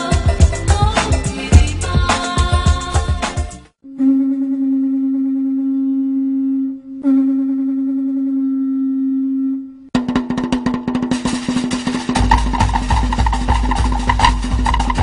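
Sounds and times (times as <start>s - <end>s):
drum ensemble rapid strokes: 10.0s - 15.0s.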